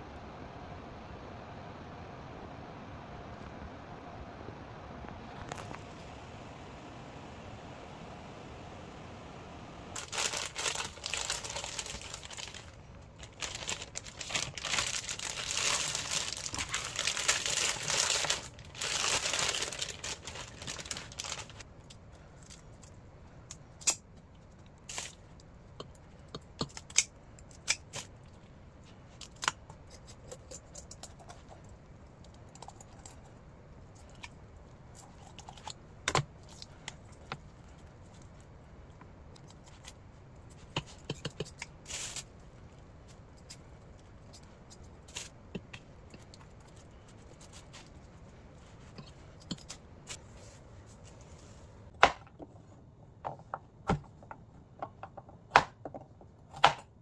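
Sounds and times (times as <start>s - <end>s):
crinkling and rustling handling: 10.0s - 27.0s, 27.8s - 56.4s.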